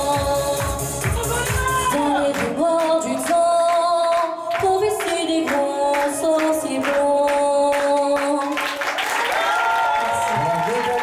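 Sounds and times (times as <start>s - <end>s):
backing track with steady beat: 0.0s - 2.0s
woman singing into a microphone: 0.0s - 8.8s.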